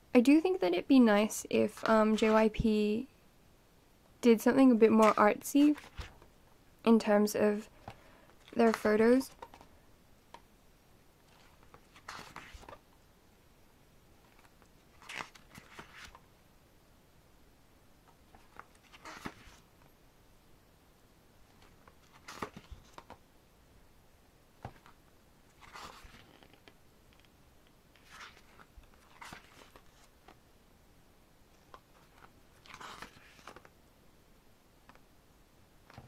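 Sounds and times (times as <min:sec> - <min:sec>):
pages being turned: 0:05.0 - 0:06.2, 0:07.8 - 0:09.7, 0:11.3 - 0:12.8, 0:14.3 - 0:16.2, 0:18.3 - 0:19.7, 0:21.5 - 0:23.2, 0:24.6 - 0:27.3, 0:27.9 - 0:30.4, 0:31.6 - 0:33.7.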